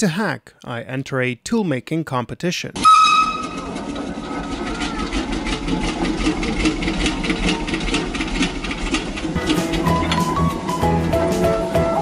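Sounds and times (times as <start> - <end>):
machine clattering: 3.1 - 10.4.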